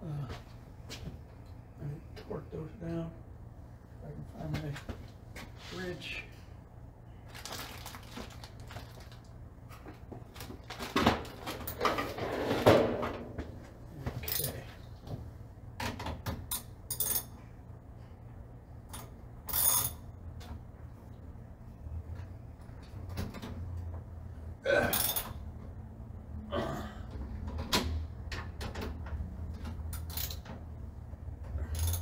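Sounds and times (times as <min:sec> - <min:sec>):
hand tools clinking on metal: 0:24.9 - 0:25.3, 0:31.6 - 0:32.0
wrench rattling: 0:24.9 - 0:25.4, 0:29.9 - 0:30.5, 0:31.6 - 0:32.0.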